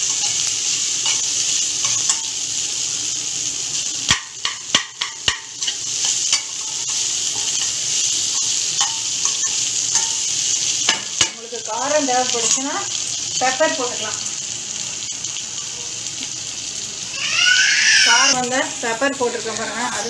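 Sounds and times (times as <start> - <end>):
oil sizzling: 0.0 - 20.0
spatula knocking against pan: 4.1 - 5.5.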